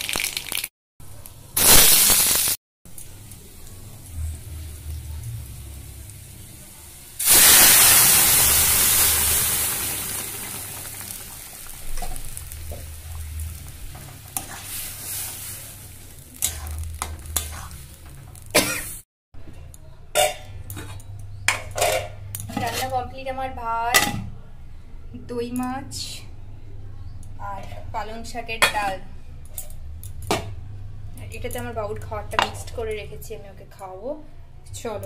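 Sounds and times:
food sizzling in hot oil: 0.0 - 0.7, 1.6 - 19.0
metal spatula scraping wok: 14.0 - 18.4.

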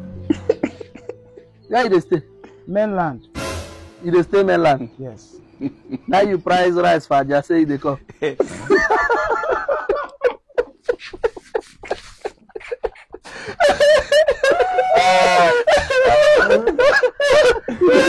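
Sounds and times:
man laughing: 0.3 - 1.2, 1.8 - 2.3, 5.5 - 6.4, 8.0 - 18.0.

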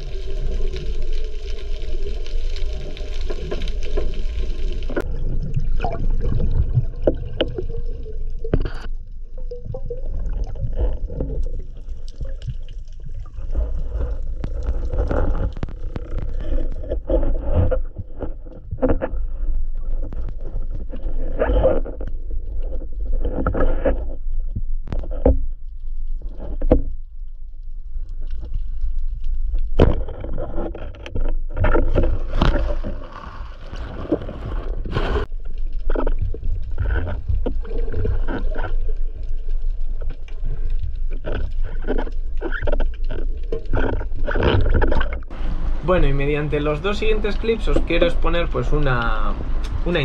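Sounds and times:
underwater rumble of water: 0.0 - 50.0
water rushing surges: 45.3 - 50.0.

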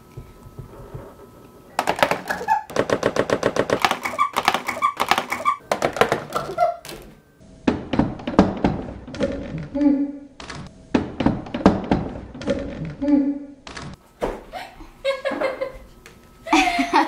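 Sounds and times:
rapid loud clicks and knocks: 1.8 - 6.4.

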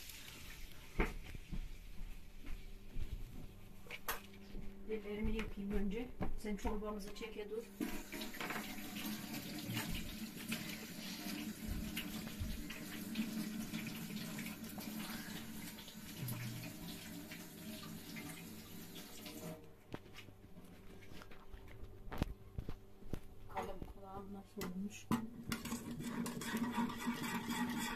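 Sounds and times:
tap water running into sink: 7.7 - 19.6.

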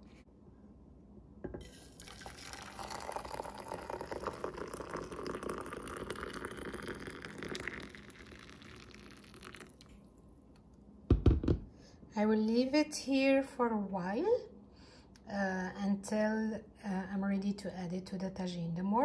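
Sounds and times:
water pouring into metal teapot: 1.6 - 9.9.

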